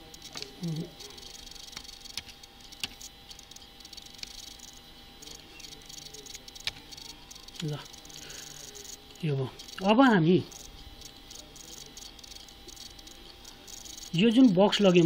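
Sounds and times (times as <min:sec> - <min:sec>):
thin steady hum: 0:00.0 - 0:15.0
keyboard and mouse clicks: 0:01.2 - 0:04.4.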